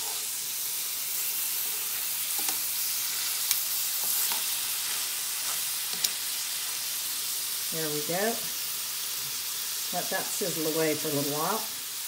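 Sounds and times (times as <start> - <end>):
meat sizzling in a frying pan: 0.0 - 12.0
metal tongs clicking on pan: 2.3 - 2.6, 3.4 - 4.5, 5.9 - 6.2.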